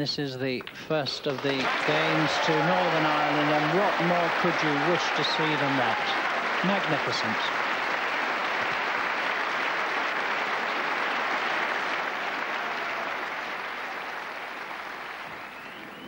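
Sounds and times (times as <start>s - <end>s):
audience applauding: 1.3s - 16.0s.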